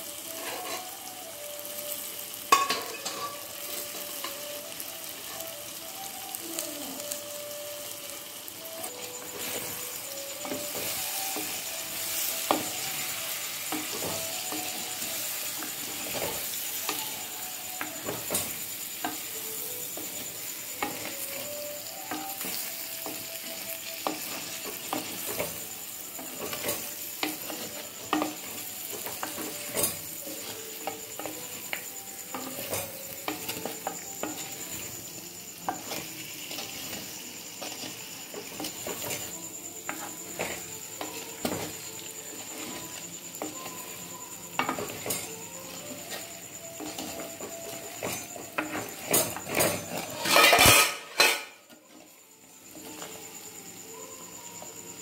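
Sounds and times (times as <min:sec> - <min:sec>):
light sizzle: 0:00.0 - 0:55.0
wooden ladle scraping a pot: 0:49.1 - 0:51.6.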